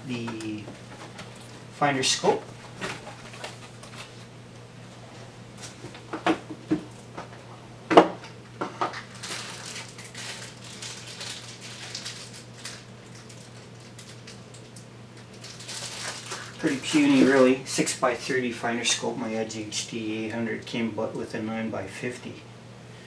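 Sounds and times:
steady low hum: 0.0s - 23.0s
packaging rustling: 2.4s - 4.3s, 8.9s - 17.6s.

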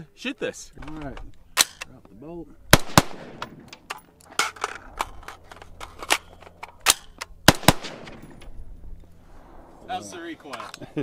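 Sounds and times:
rifle shots: 2.7s - 3.7s, 6.8s - 8.4s.

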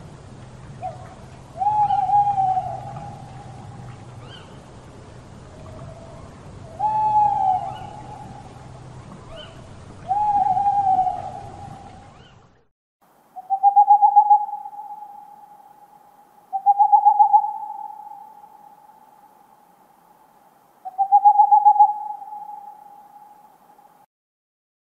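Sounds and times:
low hum: 0.0s - 12.7s
owl hooting: 0.7s - 4.6s, 5.6s - 8.6s, 9.3s - 12.3s, 13.4s - 19.3s, 20.8s - 23.5s.

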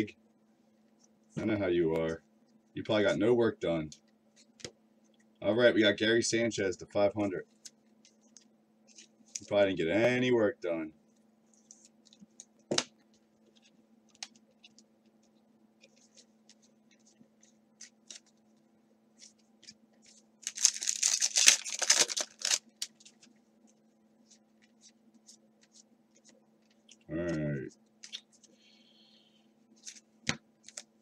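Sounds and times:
cards rustling and ticking: 11.2s - 28.7s, 29.7s - 31.0s
foil pack tearing: 20.4s - 22.9s.

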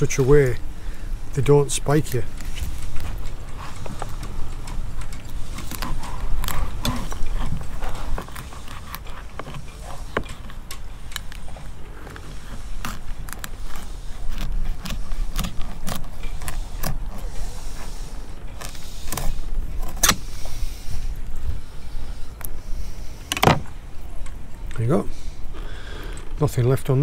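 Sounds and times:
knife scraping fish bones: 12.0s - 20.6s.

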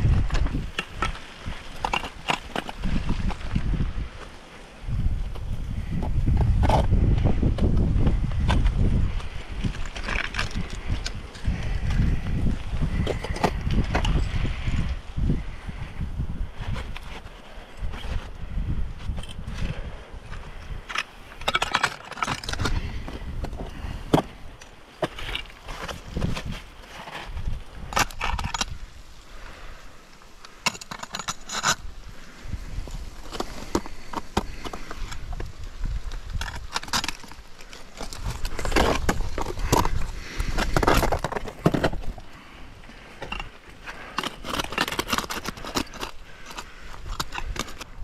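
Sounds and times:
ice tools clicking on rock: 0.0s - 3.8s, 7.6s - 14.4s, 20.4s - 28.9s, 30.3s - 31.9s, 32.8s - 42.4s, 43.2s - 48.0s
wind buffeting microphone: 0.0s - 29.8s, 31.5s - 48.0s.

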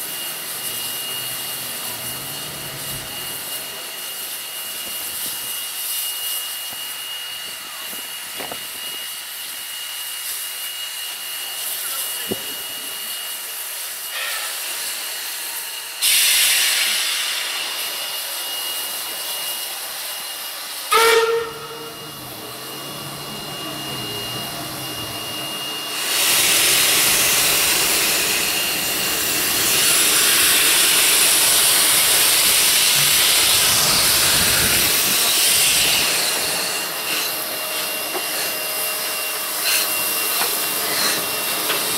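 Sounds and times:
drain cocks blowing steam: 0.0s - 41.9s
steam hissing: 0.0s - 41.9s
steam whistle toot: 20.8s - 41.9s.

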